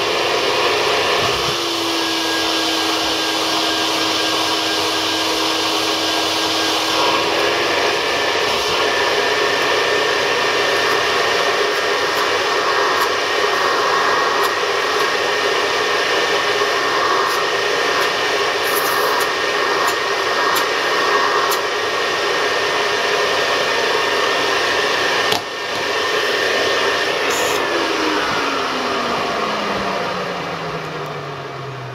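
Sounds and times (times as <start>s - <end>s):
vacuum cleaner running: 0.0s - 31.9s
vacuum motor spinning down: 0.0s - 31.9s.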